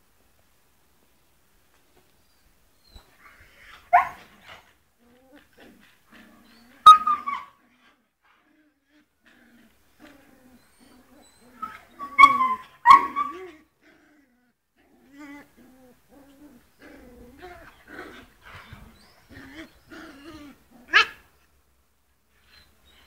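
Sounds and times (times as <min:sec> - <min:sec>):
whining growls: 0:05.0 - 0:21.3
animal yelps: 0:11.5 - 0:13.6.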